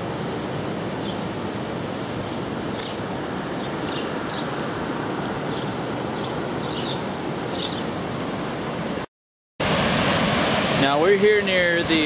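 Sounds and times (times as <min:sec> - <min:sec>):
bird chirping: 0:02.7 - 0:04.6, 0:05.5 - 0:07.9
fast river water rushing: 0:09.6 - 0:12.0.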